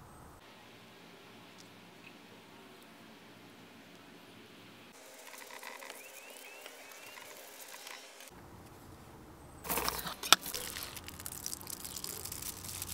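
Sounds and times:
aluminium foil crinkling: 9.7s - 12.9s
tortilla rustling: 9.7s - 12.9s.

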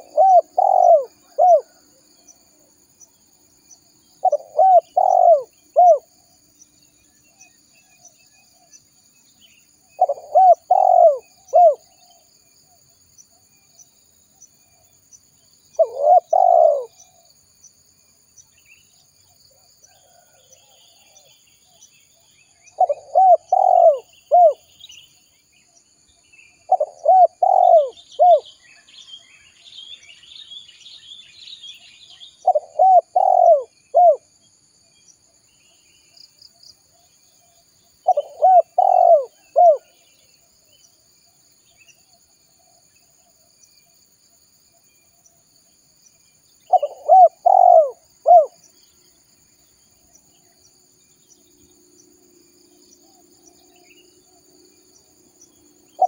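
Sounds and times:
dove cooing: 0.0s - 1.8s, 4.2s - 6.1s, 9.9s - 12.0s, 15.8s - 17.2s, 22.8s - 24.6s, 26.7s - 28.4s, 32.4s - 34.3s, 38.0s - 40.0s, 46.7s - 48.6s
faint high chirping: 0.0s - 56.0s
faint insect buzz: 0.0s - 56.0s.

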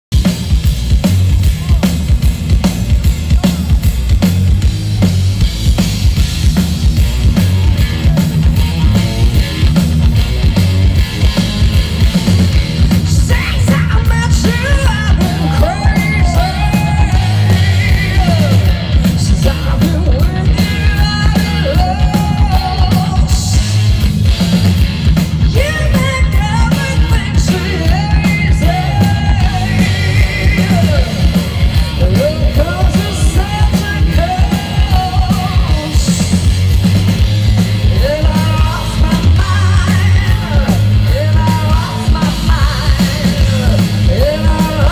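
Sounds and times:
hard rock band playing: 0.0s - 44.9s
woman singing: 13.1s - 23.6s, 25.5s - 31.2s, 32.0s - 36.3s, 38.0s - 44.9s.

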